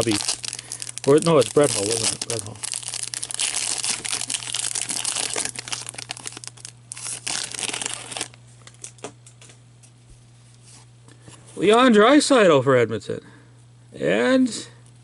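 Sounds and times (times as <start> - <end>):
foil wrapper tearing and crinkling: 0.0 - 9.0.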